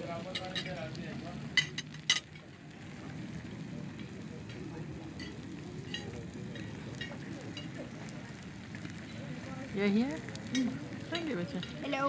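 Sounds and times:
sizzling hot iron plate: 0:00.0 - 0:12.0
cutlery clinking on a plate: 0:01.6 - 0:02.5.

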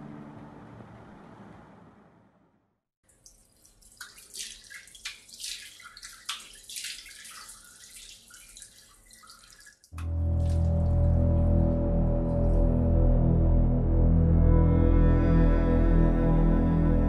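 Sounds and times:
tap water splashing in a sink: 0:03.0 - 0:10.8
low droning film score: 0:10.0 - 0:17.0.

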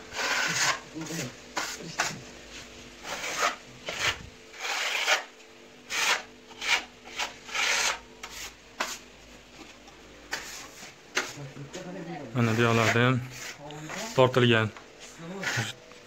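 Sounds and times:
trowel scraping plaster on wall: 0:00.1 - 0:02.2, 0:03.0 - 0:05.3, 0:05.9 - 0:09.0, 0:10.3 - 0:11.4, 0:12.4 - 0:14.2, 0:15.3 - 0:15.8.

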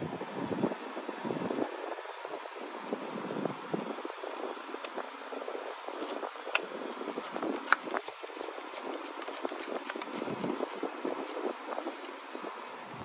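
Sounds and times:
steady background hiss: 0:00.0 - 0:13.0
ratchet clicking: 0:06.0 - 0:11.5.

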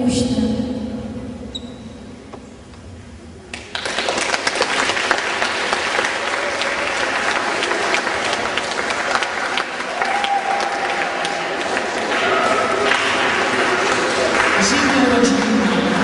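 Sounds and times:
audience clapping: 0:03.5 - 0:16.0.

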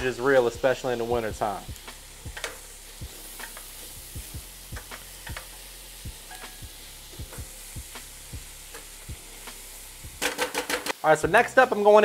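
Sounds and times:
vegetables sizzling in a skillet: 0:00.0 - 0:12.0
utensil clicking against pan: 0:02.3 - 0:02.6, 0:03.4 - 0:03.7, 0:04.8 - 0:05.6.

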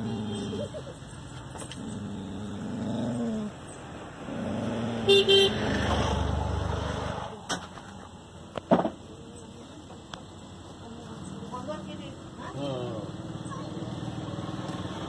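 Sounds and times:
passing vehicle rumble: 0:00.0 - 0:08.0, 0:10.7 - 0:15.0
dog growling: 0:01.7 - 0:03.6, 0:04.2 - 0:05.1
vehicle horn toots: 0:05.1 - 0:05.7.

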